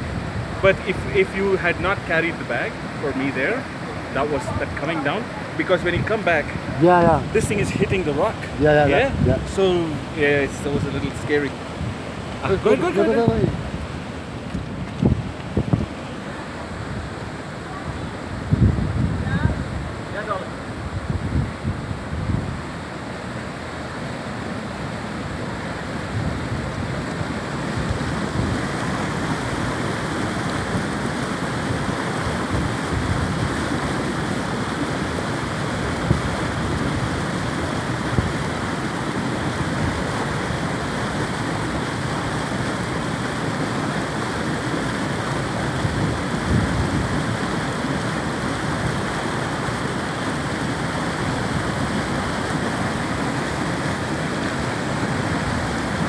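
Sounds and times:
wind on microphone: 0:00.0 - 0:01.6, 0:04.2 - 0:23.1, 0:25.1 - 0:56.0
stream running over rocks: 0:00.0 - 0:56.0.

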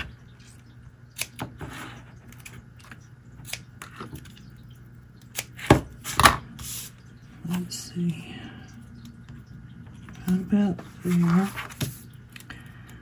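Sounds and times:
paper being handled: 0:10.8 - 0:12.1.

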